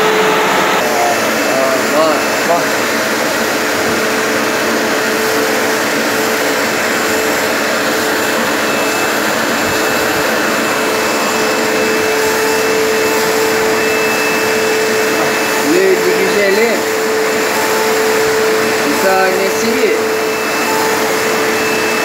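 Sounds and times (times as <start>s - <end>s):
vacuum cleaner running: 0.0s - 22.0s
faint high whistle: 8.6s - 16.6s, 17.6s - 22.0s.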